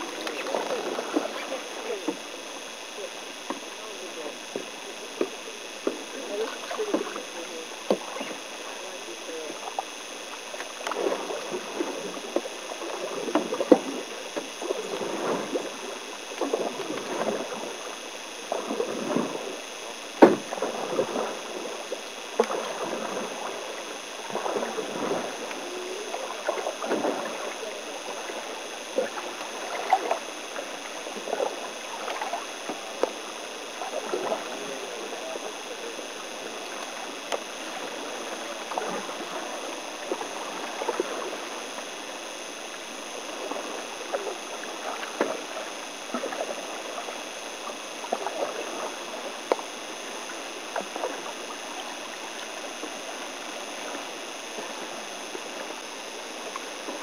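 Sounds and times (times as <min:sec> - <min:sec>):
canoe paddles splashing water: 0:00.0 - 0:57.0.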